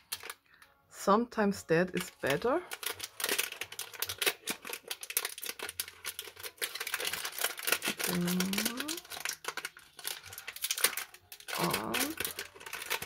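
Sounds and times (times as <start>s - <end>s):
paper bag crinkling and rustling: 0.0s - 0.4s, 2.0s - 13.0s
person humming: 8.0s - 9.0s.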